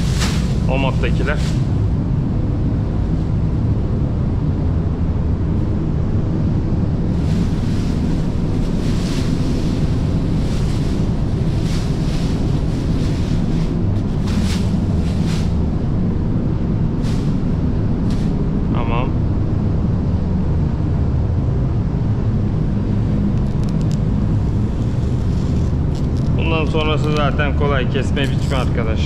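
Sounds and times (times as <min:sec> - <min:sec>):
ventilation air rushing: 0:00.0 - 0:29.0
plastic film crinkling: 0:24.6 - 0:26.4.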